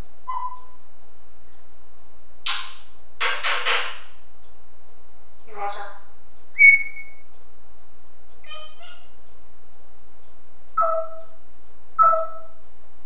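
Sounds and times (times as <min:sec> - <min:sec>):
parrot whistling and calling: 0:06.6 - 0:07.2, 0:08.5 - 0:09.0, 0:10.8 - 0:11.2, 0:12.0 - 0:12.5.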